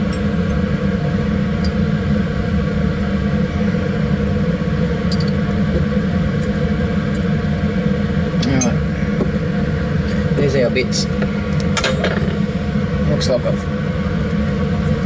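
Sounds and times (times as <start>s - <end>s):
blower humming: 0.0s - 15.0s.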